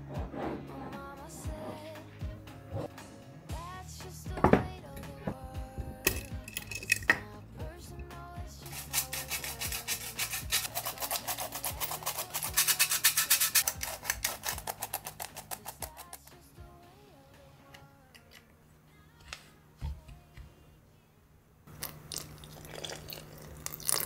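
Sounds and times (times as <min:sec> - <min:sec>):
flour sifter rasping clicks: 0:12.2 - 0:16.4.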